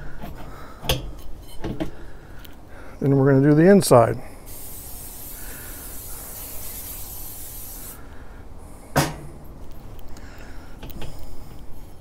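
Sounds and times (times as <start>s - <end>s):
aerosol spray can hissing: 4.5s - 8.0s.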